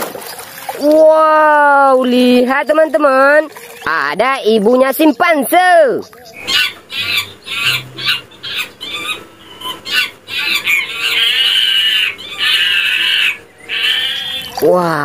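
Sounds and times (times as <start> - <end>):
chimpanzee cries and screams: 6.3 - 14.6.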